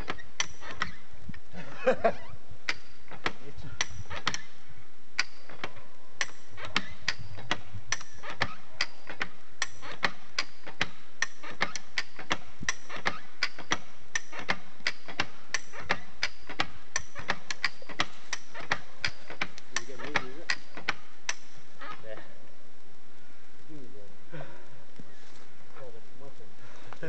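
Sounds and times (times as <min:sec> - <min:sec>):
hand winch lever clicking: 0:00.0 - 0:01.0, 0:02.7 - 0:04.5, 0:05.2 - 0:22.1.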